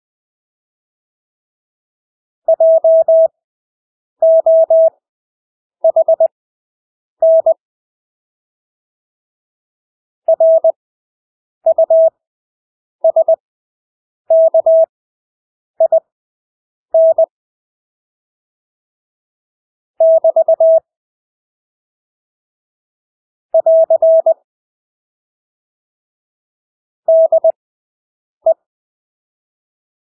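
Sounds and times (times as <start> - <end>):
morse code beeps: 2.5 - 3.3, 4.2 - 4.9, 5.8 - 6.3, 7.2 - 7.6, 10.3 - 10.8, 11.7 - 12.2, 13.0 - 13.4, 14.3 - 14.9, 17.0 - 17.3, 20.0 - 20.8, 23.6 - 24.4, 27.1 - 27.6.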